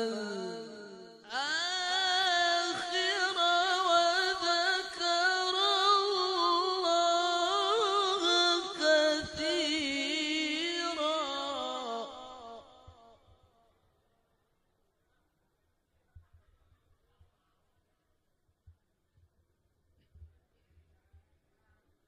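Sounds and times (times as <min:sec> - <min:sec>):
man reciting melodic chant: 0:00.0 - 0:12.8.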